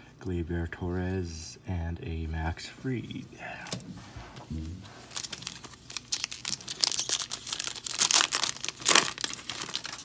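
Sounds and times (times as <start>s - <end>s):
wrapper tearing and crinkling: 5.0s - 10.0s.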